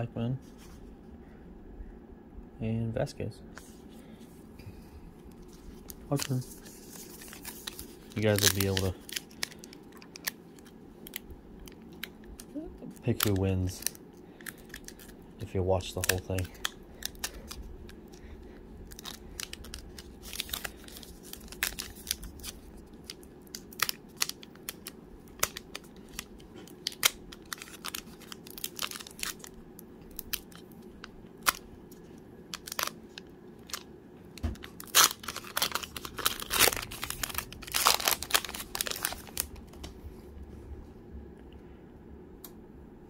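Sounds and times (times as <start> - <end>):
foil wrapper tearing and crinkling: 5.3 - 31.7, 32.5 - 39.7.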